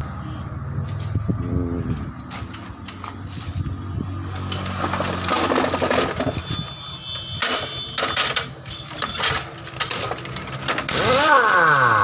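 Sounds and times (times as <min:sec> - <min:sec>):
tool clicks and clatter: 0:04.4 - 0:12.0.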